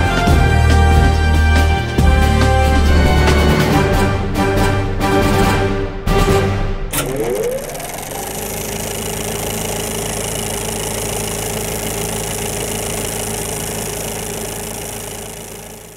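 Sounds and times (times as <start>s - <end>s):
film projector whirring: 6.9s - 15.9s.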